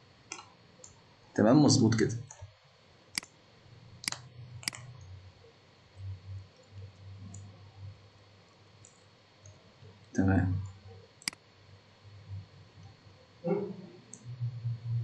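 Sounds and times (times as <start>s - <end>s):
faint low hum: 0.0s - 15.0s
computer mouse clicking: 0.3s - 1.0s, 3.1s - 3.3s, 4.0s - 5.1s, 6.6s - 7.5s, 8.8s - 9.6s, 10.6s - 11.4s, 12.8s - 14.3s.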